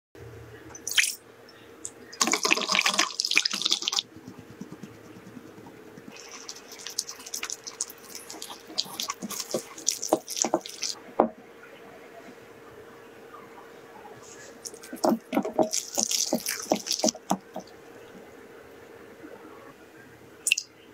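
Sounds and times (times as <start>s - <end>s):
liquid pouring into glass bowl: 2.2s - 4.0s, 6.1s - 11.0s, 14.7s - 17.6s
whisk scraping glass bowl: 2.2s - 11.0s, 14.7s - 17.7s.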